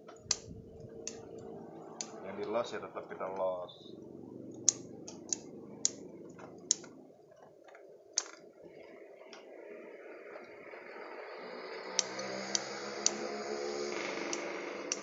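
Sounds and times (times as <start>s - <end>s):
pruning scissors snipping twigs: 0.0s - 2.7s, 4.5s - 7.0s, 11.9s - 13.3s.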